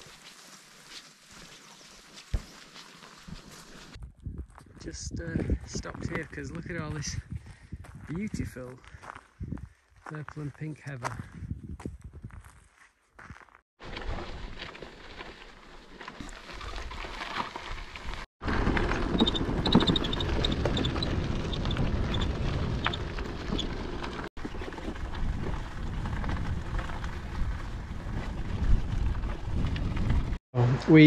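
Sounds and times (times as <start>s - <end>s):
tyres crunching over gravel: 0.0s - 5.0s, 13.2s - 30.4s
wind rumbling on microphone: 4.0s - 9.8s, 11.0s - 12.6s, 17.8s - 30.4s.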